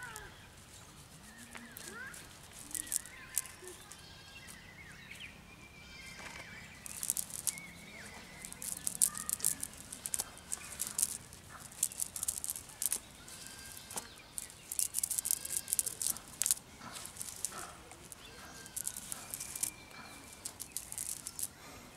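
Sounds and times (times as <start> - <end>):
net and pond weed rustling: 0.0 - 4.6, 6.6 - 21.9.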